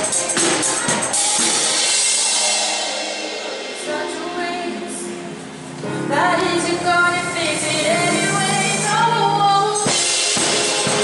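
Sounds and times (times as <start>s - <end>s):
drum and cymbal hit: 0.0s - 5.3s, 9.8s - 11.0s
keyboard chords: 0.0s - 11.0s
woman singing: 3.8s - 10.0s.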